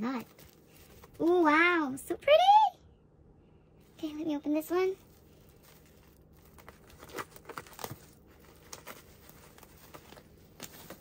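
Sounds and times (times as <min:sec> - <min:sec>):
plastic wrap crinkling and tearing: 0:05.0 - 0:11.0.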